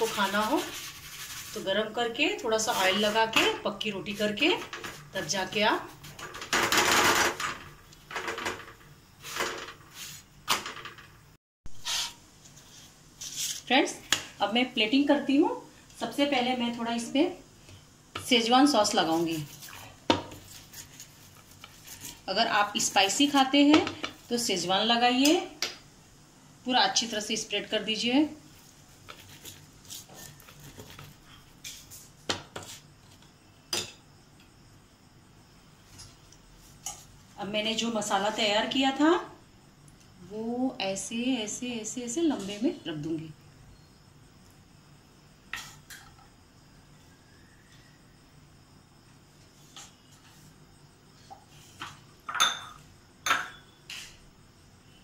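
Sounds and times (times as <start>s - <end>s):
cookware scraping and knocking: 51.8s - 53.6s.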